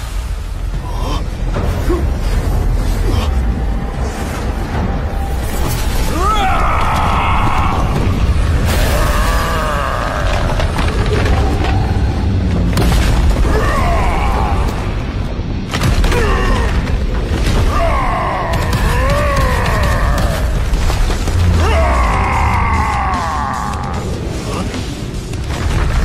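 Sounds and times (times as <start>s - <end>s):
dramatic film music: 0.0s - 26.0s
giant ape roaring: 6.1s - 12.2s, 21.5s - 24.8s.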